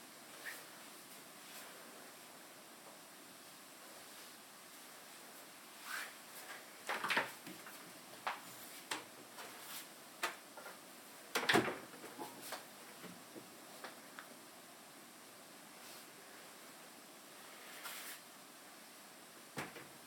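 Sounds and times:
cupboard doors clicking and knocking: 11.3s - 13.1s, 19.6s - 20.0s.

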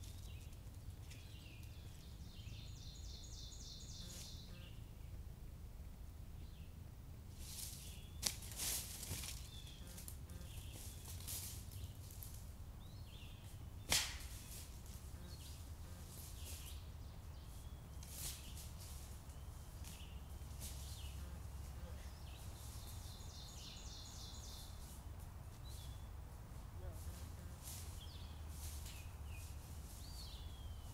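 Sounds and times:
bird chirps: 0.0s - 4.9s, 26.8s - 30.9s
sharp cracks: 13.8s - 14.6s.

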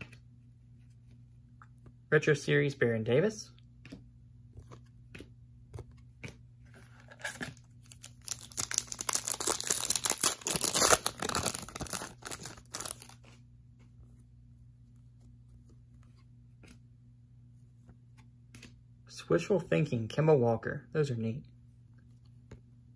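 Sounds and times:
wrapper ripping and rustling: 7.1s - 13.2s.

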